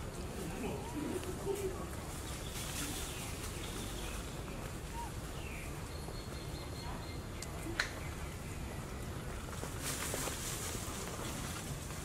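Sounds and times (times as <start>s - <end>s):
faint animal calls: 4.8s - 5.2s.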